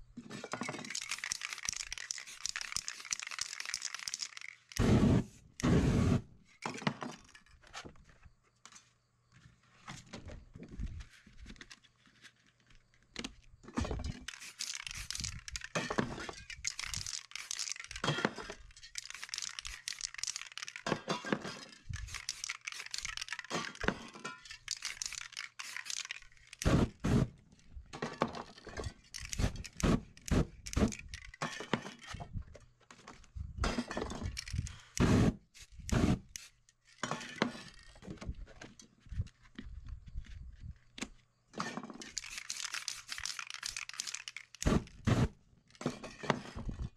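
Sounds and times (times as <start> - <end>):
spray can hissing: 0.9 - 6.2, 14.2 - 15.5, 16.7 - 18.0, 19.0 - 20.8, 22.0 - 23.3, 24.7 - 27.3, 35.0 - 36.5, 42.1 - 45.3.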